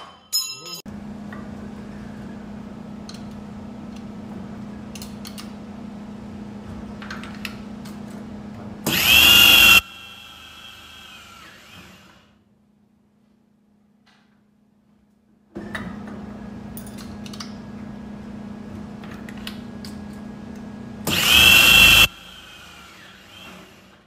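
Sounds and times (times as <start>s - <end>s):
drill motor humming: 8.9s - 12.2s, 21.1s - 24.0s
loud burst: 21.1s - 22.3s.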